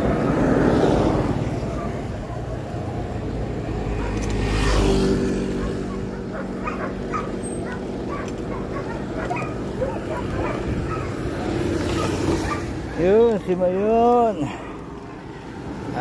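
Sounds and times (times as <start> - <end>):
motor vehicle passing: 0.0 - 16.0
wind and road rumble: 0.0 - 16.0
dog barking: 1.7 - 2.6, 3.9 - 4.9, 5.5 - 12.8.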